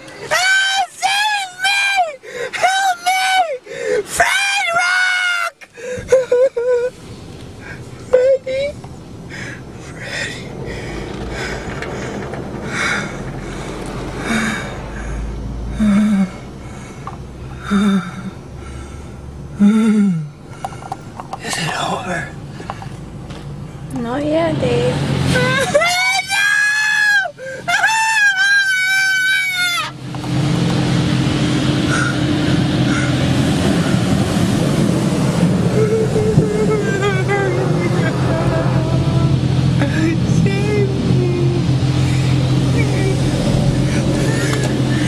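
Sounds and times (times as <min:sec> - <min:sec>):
water spraying on car: 0:00.0 - 0:19.1, 0:20.5 - 0:24.1, 0:24.8 - 0:45.0
man gasping and breathing hard: 0:02.2 - 0:02.6, 0:03.6 - 0:04.1, 0:05.7 - 0:06.1, 0:09.2 - 0:23.0, 0:27.3 - 0:27.7
low rumble: 0:06.0 - 0:25.6, 0:30.0 - 0:45.0
man whimpering: 0:15.7 - 0:16.4, 0:17.6 - 0:18.4, 0:19.6 - 0:20.4, 0:35.6 - 0:41.8.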